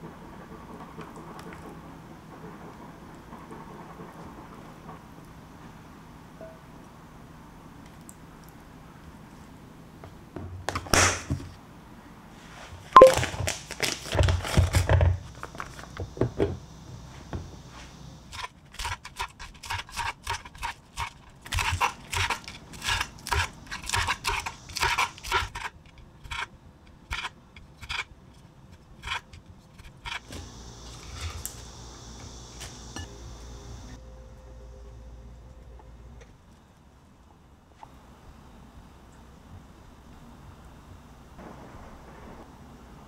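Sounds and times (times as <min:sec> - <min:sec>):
knife chopping lettuce on board: 0:18.8 - 0:25.7.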